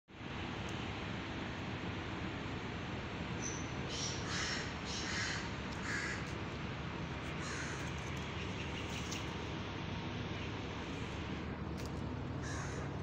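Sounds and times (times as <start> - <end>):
low background noise: 0.1 - 13.0
crow cawing: 3.9 - 6.3, 7.4 - 7.9, 12.4 - 13.0.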